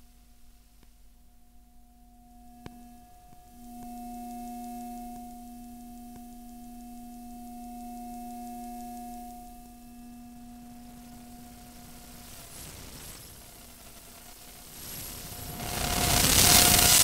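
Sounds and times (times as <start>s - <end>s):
steady electronic hum: 0.0s - 17.0s.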